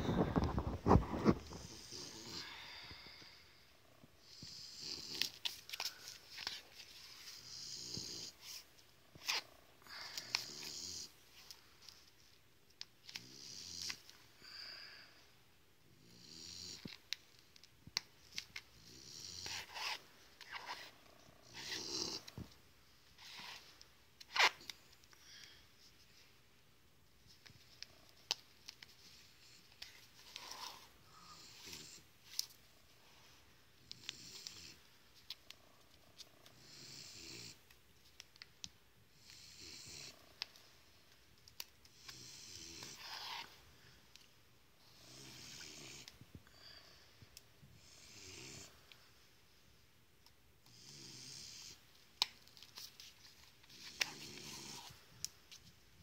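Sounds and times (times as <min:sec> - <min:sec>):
dog snoring softly: 0:39.2 - 0:40.3.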